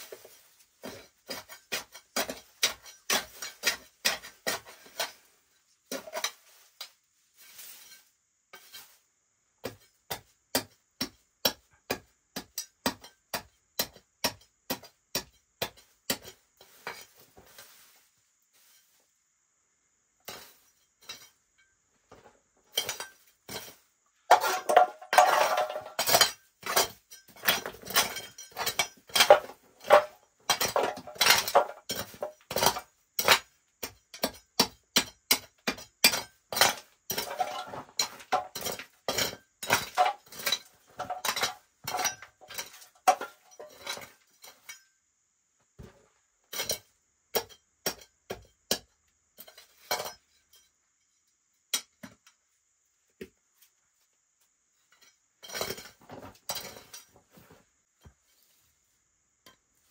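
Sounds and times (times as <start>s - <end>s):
metal shovel digging into gravel: 0.0s - 5.3s, 5.9s - 9.0s, 20.2s - 21.4s, 22.7s - 44.8s, 55.4s - 57.2s.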